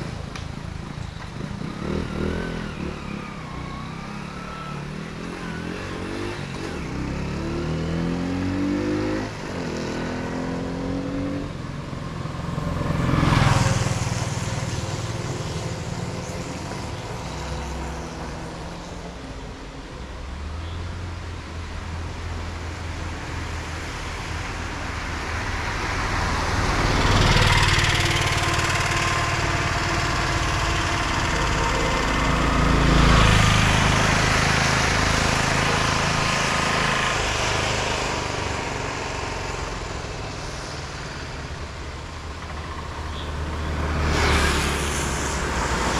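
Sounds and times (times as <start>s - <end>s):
vehicles driving past: 0.0s - 45.9s
engine speeding up: 25.6s - 45.9s.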